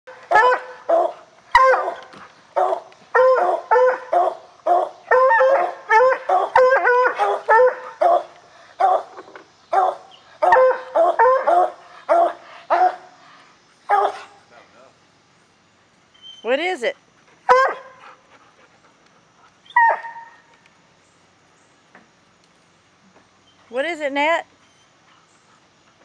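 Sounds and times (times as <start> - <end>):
hounds baying: 0.3 - 13.1, 13.9 - 14.4.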